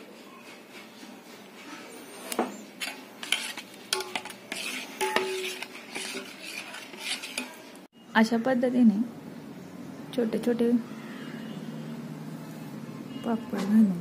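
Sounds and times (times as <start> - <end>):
ladle scraping steel pot: 2.0 - 7.9.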